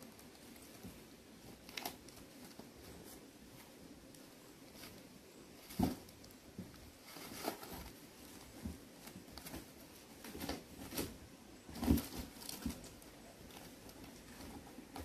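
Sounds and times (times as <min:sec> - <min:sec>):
kittens eating dry food: 0:00.0 - 0:15.0
kittens knocking and scraping: 0:05.6 - 0:15.0.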